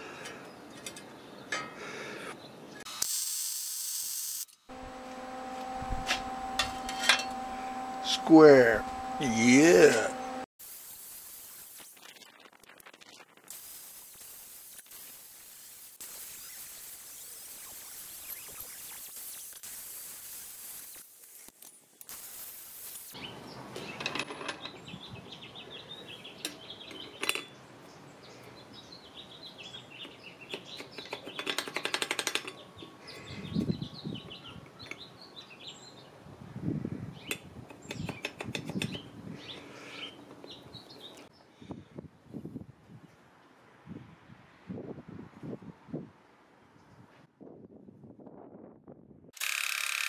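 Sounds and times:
steady hiss: 10.6 - 23.2
birds chirping: 37.1 - 41.6.

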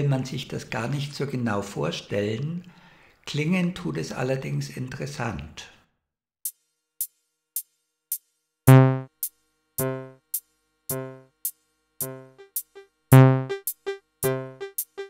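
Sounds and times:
electronic drum pattern with echoes: 8.7 - 9.1, 9.8 - 10.2, 10.9 - 11.2, 12.0 - 15.0
plucked tone with echoing repeats: 8.7 - 9.1, 9.8 - 10.2, 10.9 - 11.2, 12.0 - 15.0.

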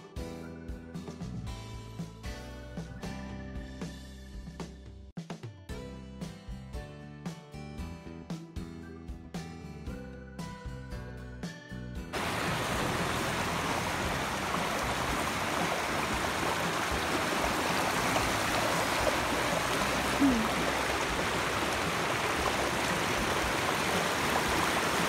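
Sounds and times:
river flowing over rocks: 12.2 - 25.0.

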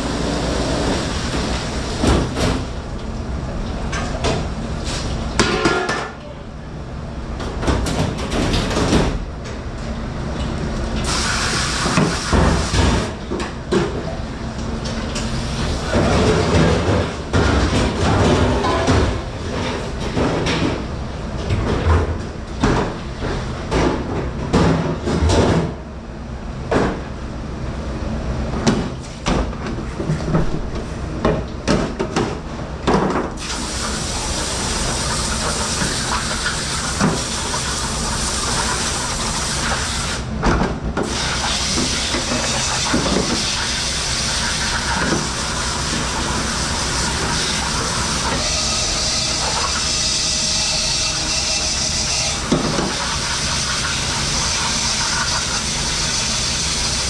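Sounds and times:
dishes and pans clattering: 5.4 - 6.2, 16.0 - 20.8.

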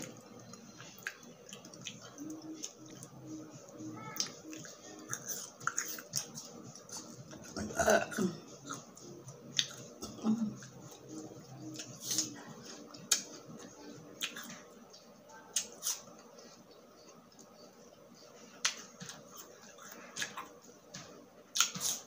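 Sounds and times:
quiet chewing: 0.0 - 22.0
apple crunching: 21.5 - 22.0.

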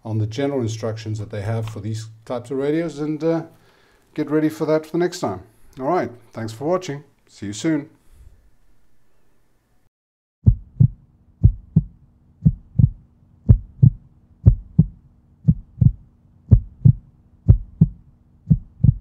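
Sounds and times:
heartbeat thumps: 10.4 - 19.0
faint steady hum: 10.5 - 19.0.

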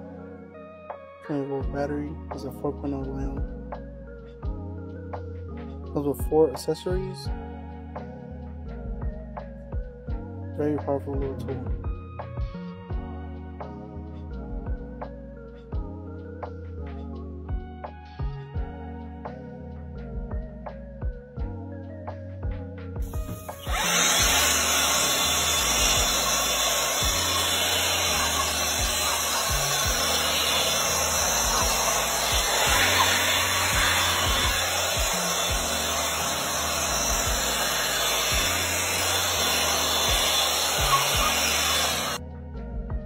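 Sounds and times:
background music: 0.0 - 43.0
leaf blower running: 23.0 - 42.2.

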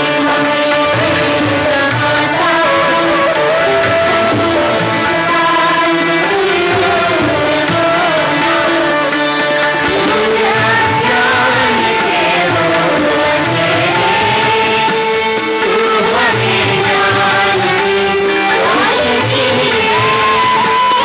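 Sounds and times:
person singing: 0.0 - 21.0
sitar: 0.0 - 21.0
tabla: 0.0 - 21.0
bamboo flute: 2.6 - 5.1, 19.8 - 21.0.

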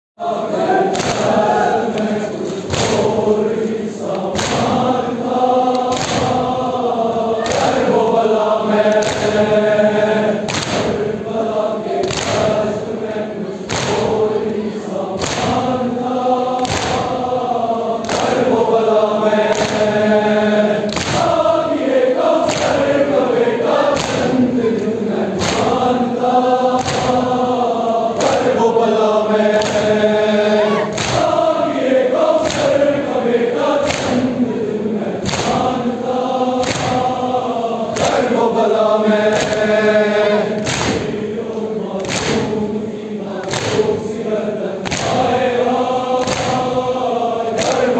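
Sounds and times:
crowd of men chanting: 0.2 - 47.9
hands striking chests: 5.8 - 6.4, 30.9 - 31.4, 44.8 - 45.3.

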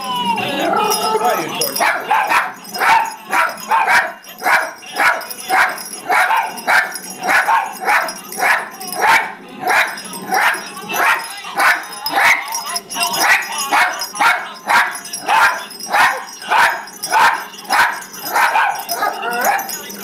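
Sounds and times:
toy dog barking a tune: 0.0 - 20.0.

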